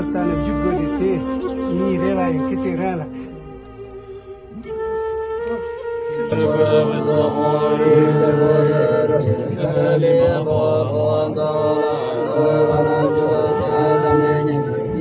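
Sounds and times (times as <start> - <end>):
steady held drone: 0.0 - 15.0
person chanting a mantra: 5.5 - 15.0.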